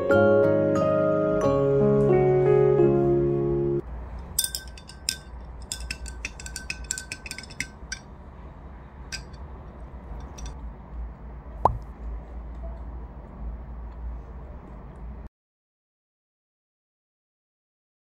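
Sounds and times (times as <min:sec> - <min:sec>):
glass straw clinking in jar: 0:04.2 - 0:08.1, 0:09.1 - 0:10.6.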